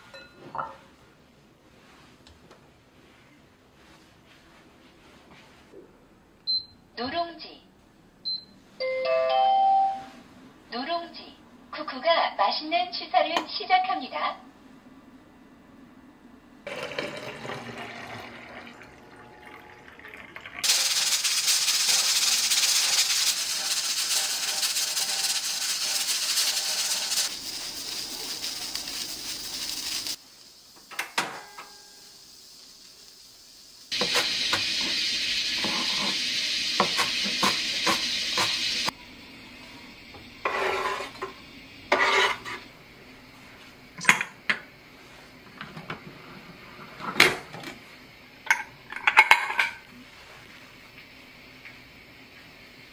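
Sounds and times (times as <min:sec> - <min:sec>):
pressure cooker hissing steam: 0:20.6 - 0:39.0.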